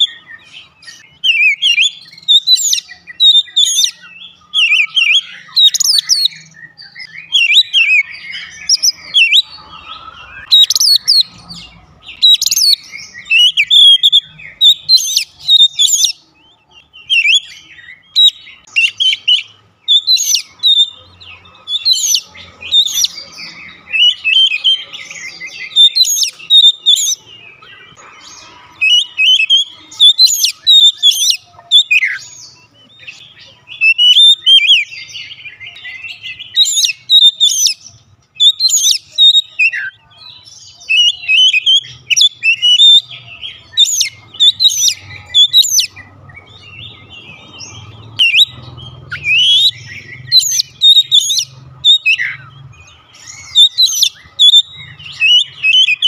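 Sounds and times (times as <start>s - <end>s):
bird singing whistled phrases: 0.0s - 28.0s, 28.8s - 56.0s.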